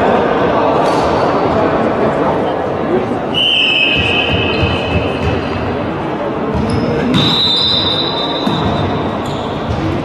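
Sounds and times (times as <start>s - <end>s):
long high whistle: 3.3s - 4.6s, 7.2s - 8.5s.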